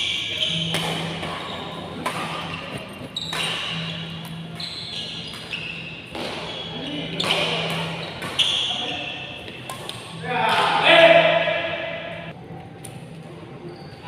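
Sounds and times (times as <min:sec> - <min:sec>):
racket striking shuttlecock: 0:00.0 - 0:06.5, 0:07.1 - 0:08.7, 0:09.4 - 0:10.8
shoes squeaking on court: 0:00.0 - 0:10.2.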